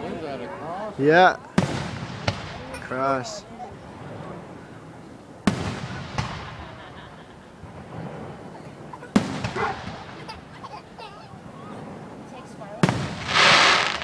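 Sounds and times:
firework shells booming: 1.6 - 2.8, 5.5 - 7.0, 9.0 - 10.3, 12.8 - 14.0
rumble after firework bursts: 12.8 - 14.0.

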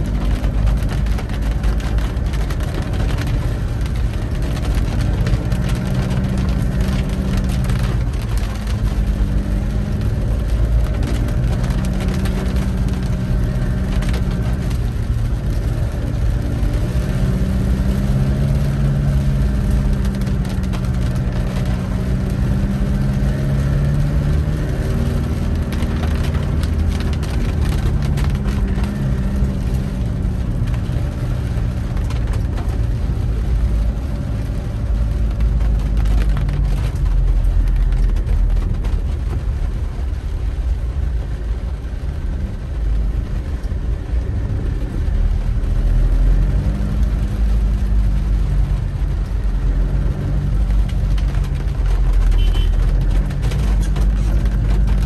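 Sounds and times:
car engine revving: 0.0 - 40.5
road noise: 0.0 - 55.0.

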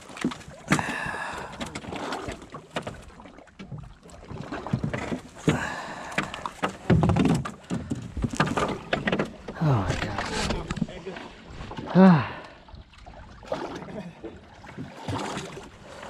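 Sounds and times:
water sloshing against boat hull: 0.0 - 16.0
water splashing: 0.0 - 16.0
knocks on boat: 4.7 - 10.9.

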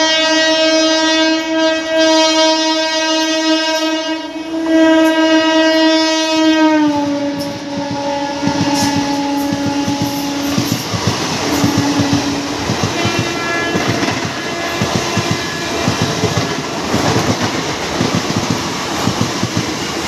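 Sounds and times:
locomotive horn blast: 0.0 - 16.3
train wheels clattering over rail joints: 7.3 - 20.0.

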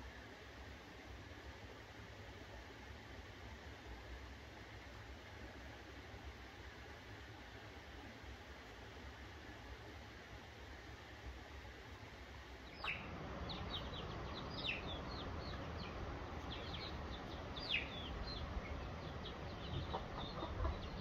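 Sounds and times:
faint hiss: 0.0 - 21.0
chicks peeping: 12.7 - 21.0.

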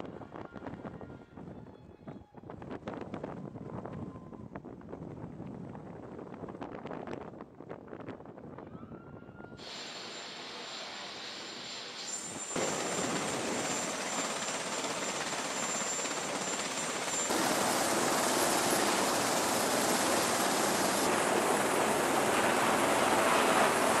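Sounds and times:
helicopter engines and rotors: 9.6 - 24.0.

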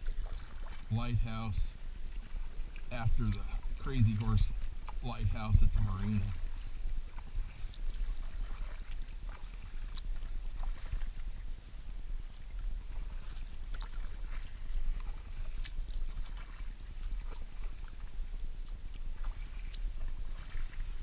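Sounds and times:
steady low rumble: 0.0 - 8.4
paddle splashes and drips: 0.0 - 21.0.

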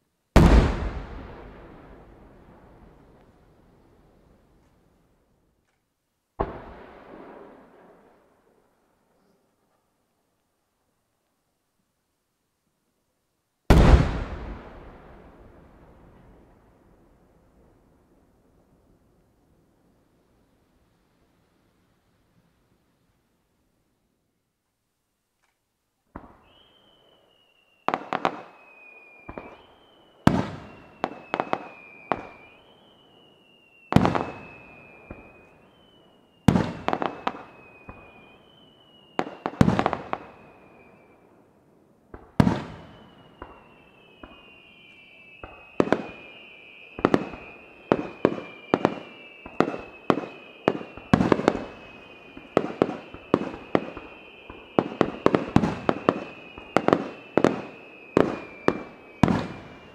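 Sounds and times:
firework bursts booming and crackling: 0.3 - 4.5, 13.7 - 18.2, 26.1 - 41.3, 42.1 - 59.9
firework whistles: 26.2 - 41.3, 42.4 - 59.9.

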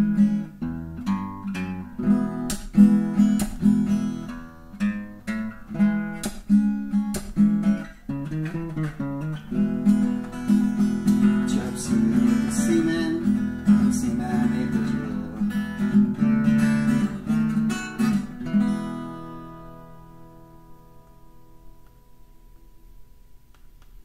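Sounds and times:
acoustic guitar strumming: 0.0 - 23.4.

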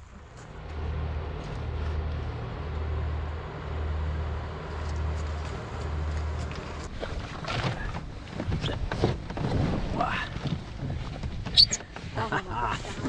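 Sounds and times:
boat engine droning: 0.0 - 9.4.

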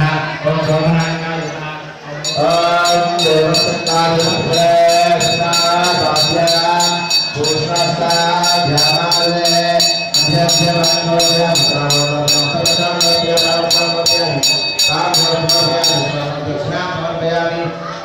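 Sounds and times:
wavering devotional melody: 0.5 - 16.7
small metal bell ringing: 2.2 - 16.5.

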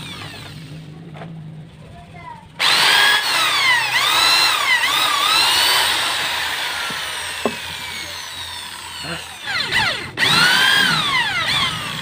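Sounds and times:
electric drill boring into wood: 0.0 - 0.9, 2.6 - 12.0.

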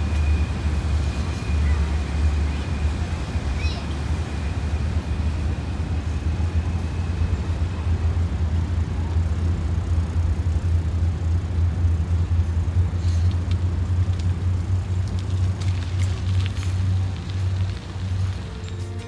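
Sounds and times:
faint ticks: 13.0 - 17.9.

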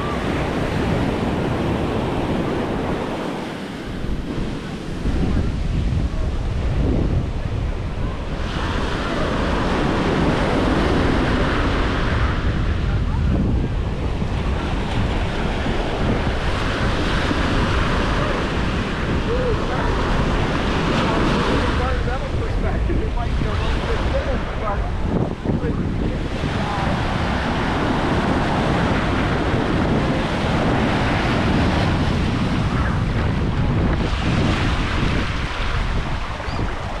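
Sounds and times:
surf breaking on sand: 0.0 - 37.0
wind buffeting microphone: 0.0 - 37.0.

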